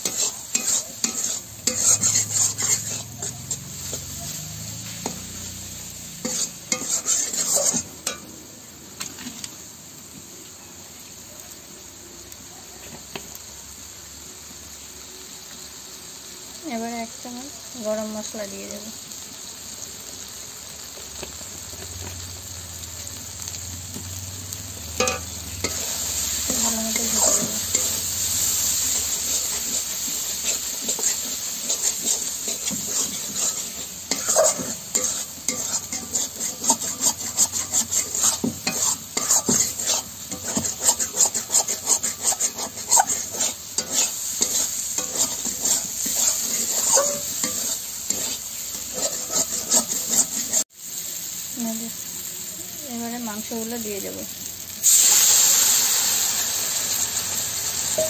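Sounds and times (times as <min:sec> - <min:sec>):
spatula scraping pan: 0:00.0 - 0:08.3, 0:25.0 - 0:50.7
food sizzling in oil: 0:00.0 - 0:58.0.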